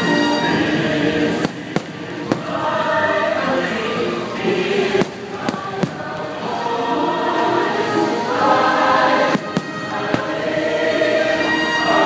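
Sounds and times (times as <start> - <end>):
choir singing with music: 0.0 - 12.0
sharp firework bangs: 1.4 - 2.8, 9.3 - 10.5.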